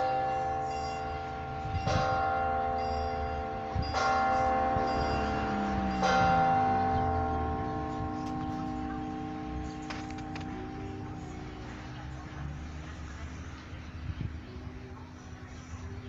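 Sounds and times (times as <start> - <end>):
large church bell tolling: 0.0 - 12.4.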